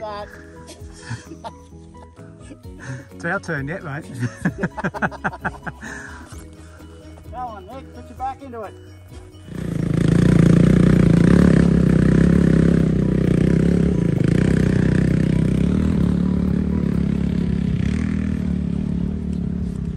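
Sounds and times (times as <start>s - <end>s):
dirt bike engine under throttle: 9.5s - 19.9s.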